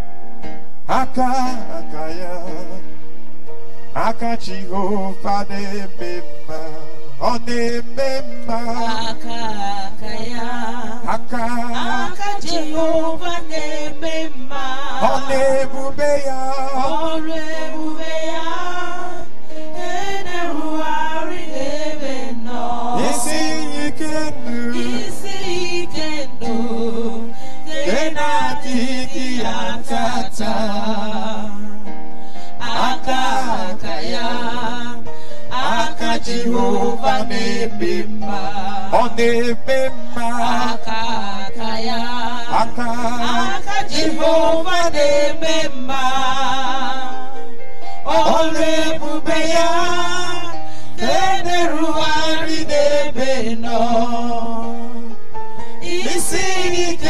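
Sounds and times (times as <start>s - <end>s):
person singing worship song: 0.9s - 3.0s, 3.9s - 55.2s, 55.8s - 57.0s.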